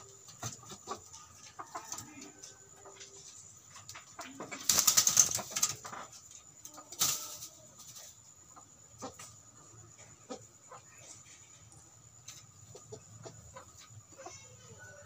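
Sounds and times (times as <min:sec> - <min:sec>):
chickens flapping wings: 0:04.2 - 0:06.0, 0:07.0 - 0:08.0.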